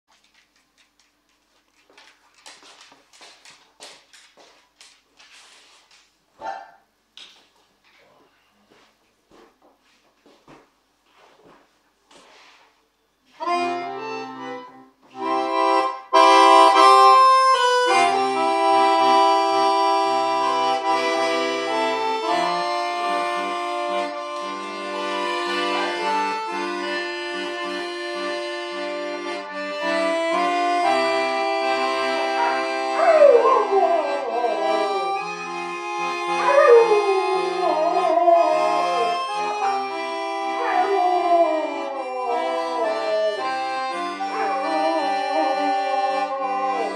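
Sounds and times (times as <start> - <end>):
accordion playing chords: 13.3 - 46.9
dog howling: 32.4 - 35.2, 36.3 - 39.8, 40.5 - 43.6, 44.3 - 46.9.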